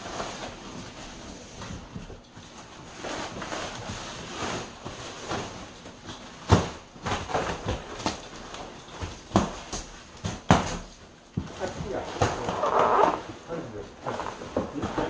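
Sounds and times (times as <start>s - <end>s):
plastic wrapping rustling: 11.6s - 15.0s.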